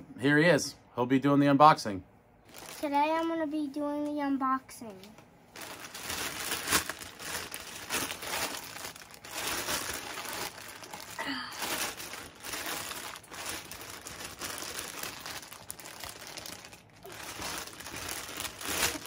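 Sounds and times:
plastic mailer bag crinkling: 2.4s - 3.3s, 5.5s - 19.0s
child wavering vocal sound: 11.2s - 11.6s.

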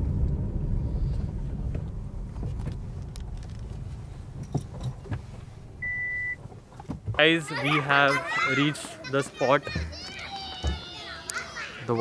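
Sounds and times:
road and engine rumble: 0.0s - 12.0s
light clicks and rattles: 1.7s - 5.5s
high-pitched beep: 5.8s - 6.4s.

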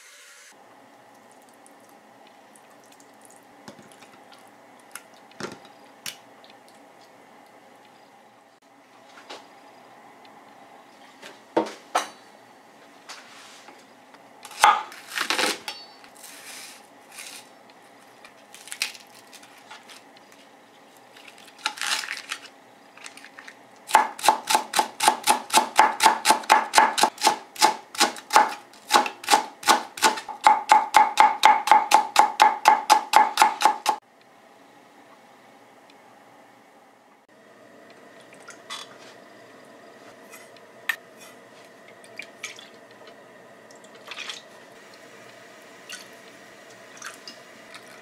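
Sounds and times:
onion being handled and peeled: 14.5s - 23.6s
knife slicing onion on board: 23.9s - 34.0s.

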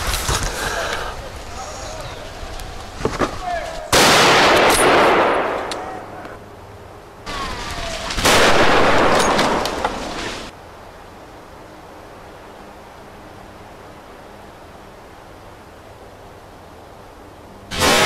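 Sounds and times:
rifle shots with echo: 3.9s - 6.2s, 8.2s - 9.9s, 17.7s - 18.0s.

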